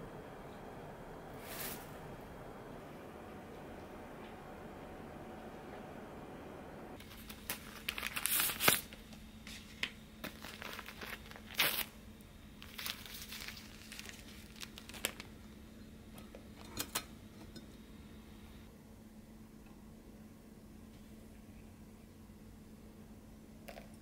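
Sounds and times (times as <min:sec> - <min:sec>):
paper bag crinkling and tearing: 0:07.0 - 0:09.0, 0:09.6 - 0:12.0, 0:12.6 - 0:15.4.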